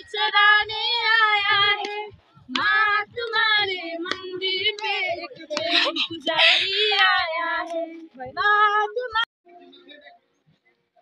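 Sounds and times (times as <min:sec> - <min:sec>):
women singing together: 0:00.0 - 0:09.3.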